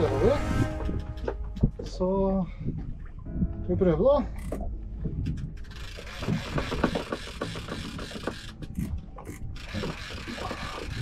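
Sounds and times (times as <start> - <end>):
fishing reel clicking: 5.6 - 11.0.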